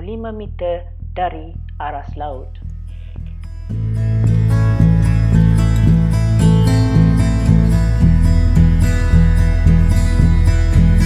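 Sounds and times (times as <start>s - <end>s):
strummed acoustic guitar music: 3.3s - 11.0s.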